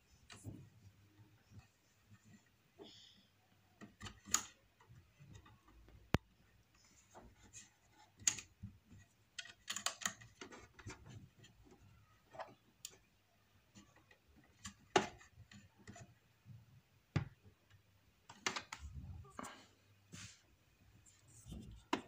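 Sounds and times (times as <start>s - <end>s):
small plastic clicks and taps: 3.8s - 13.1s, 17.1s - 18.9s.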